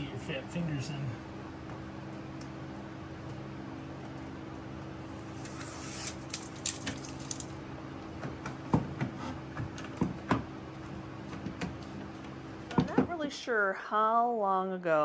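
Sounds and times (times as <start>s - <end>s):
steady low hum: 0.0s - 15.0s
rustling and handling noise: 5.3s - 7.6s.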